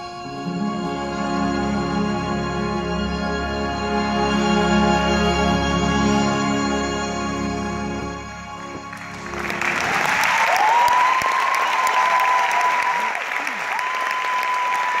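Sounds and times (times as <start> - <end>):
music: 0.0 - 10.4
crowd applauding: 8.6 - 15.0
high held cheer: 9.0 - 15.0.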